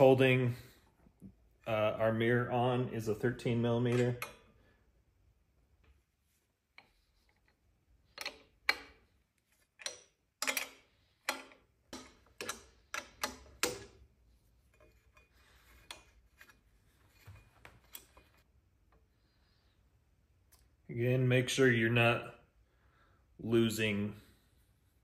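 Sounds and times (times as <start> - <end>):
wrench clicking on bolt: 9.8 - 14.0.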